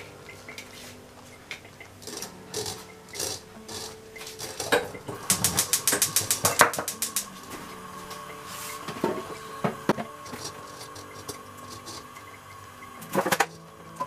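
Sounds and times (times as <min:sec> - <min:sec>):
rapid clicks: 0:01.5 - 0:07.5.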